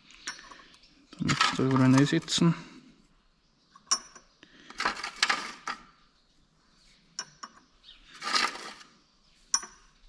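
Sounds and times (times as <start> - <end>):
small metal parts clinking: 0.2 - 2.4, 3.8 - 6.0, 7.2 - 9.9.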